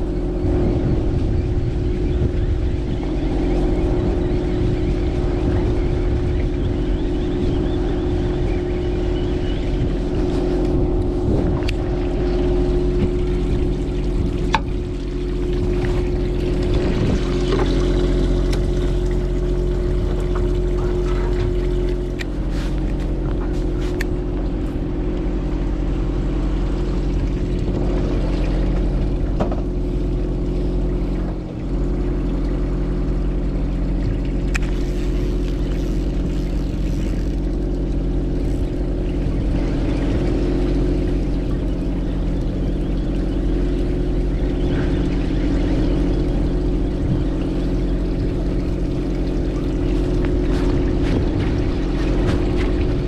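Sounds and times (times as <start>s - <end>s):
boat engine running: 0.0s - 53.0s.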